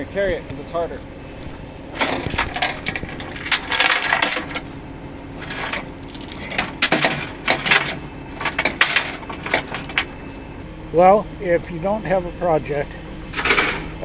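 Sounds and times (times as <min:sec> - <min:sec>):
chains clattering on metal deck: 0:01.9 - 0:04.7, 0:05.4 - 0:10.2, 0:13.3 - 0:13.9.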